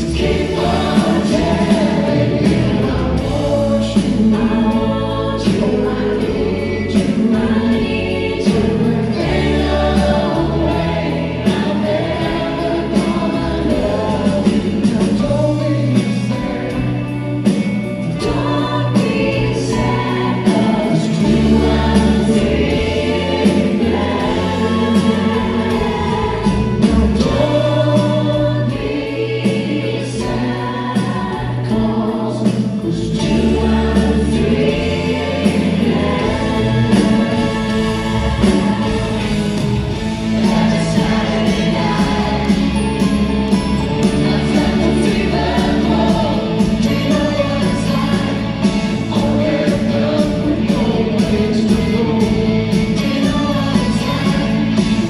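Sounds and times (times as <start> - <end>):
electric bass: 0.0 - 55.0
live rock band playing: 0.0 - 55.0
sung vocals with harmonies: 0.0 - 55.0.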